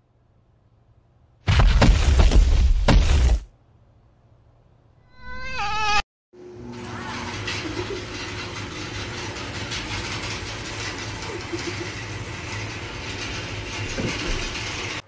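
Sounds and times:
conveyor chain rattling: 6.7s - 15.0s.

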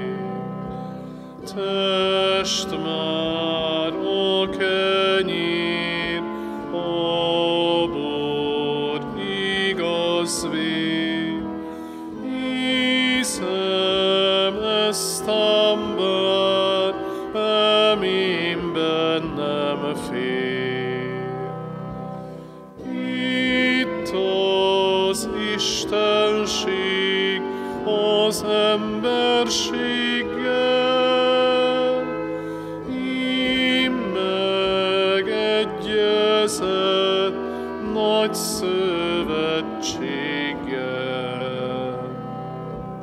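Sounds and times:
slow church hymn music: 0.0s - 43.0s.

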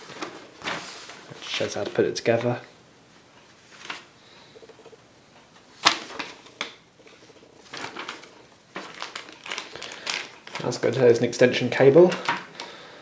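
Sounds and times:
paper rustling and clicks: 5.8s - 11.0s, 12.0s - 12.8s.

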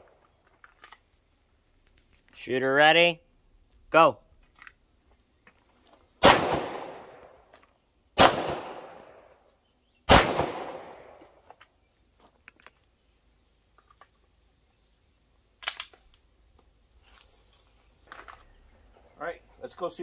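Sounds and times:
pistol shots echoing: 6.2s - 7.4s, 8.2s - 9.4s, 10.1s - 11.2s.

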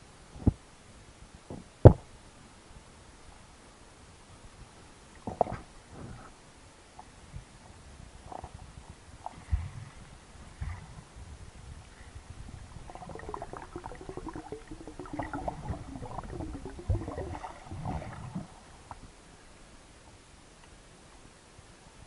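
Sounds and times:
underwater bubbles gurgling: 12.7s - 19.0s.

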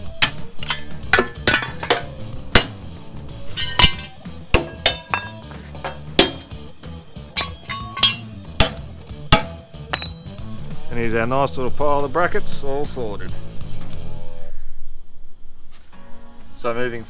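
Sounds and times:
hammer striking chisel on metal: 0.2s - 2.9s, 3.6s - 6.6s, 7.3s - 10.3s.

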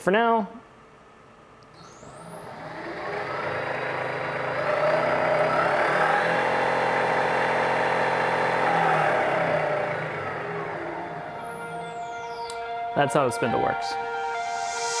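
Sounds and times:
grinder motor spinning: 1.7s - 12.3s.

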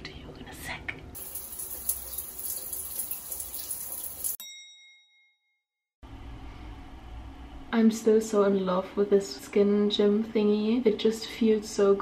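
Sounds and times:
shower water spraying on tiles: 1.2s - 4.4s.

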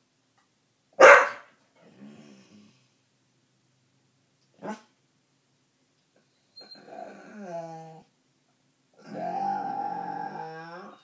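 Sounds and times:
dog barking: 1.0s - 1.6s
dog grumbling: 6.7s - 8.1s, 9.0s - 11.0s.

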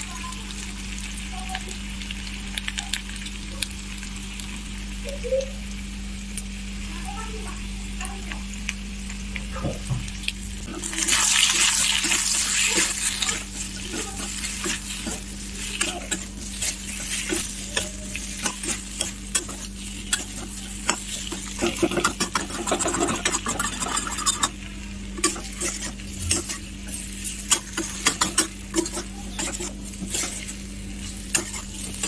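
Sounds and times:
potatoes sizzling in oil: 0.0s - 32.0s
spatula scraping pan: 10.7s - 32.0s.

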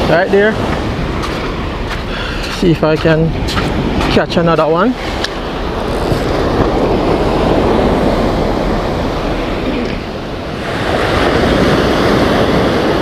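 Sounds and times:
surf breaking on beach: 0.0s - 13.0s
wind buffeting microphone: 0.0s - 13.0s.

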